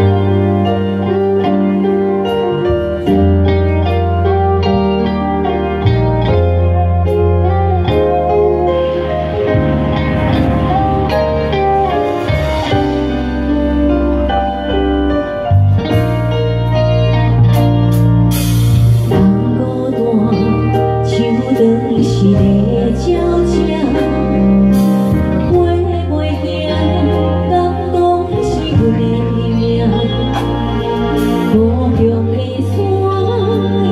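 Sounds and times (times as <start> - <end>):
live band playing slow song: 0.0 - 33.9
woman singing: 19.1 - 33.9.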